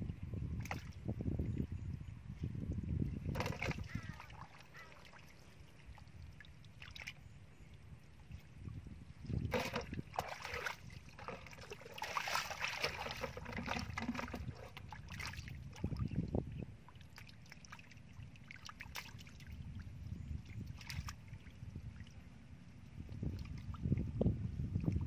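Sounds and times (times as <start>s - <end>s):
hands splashing in muddy water: 9.5s - 16.0s.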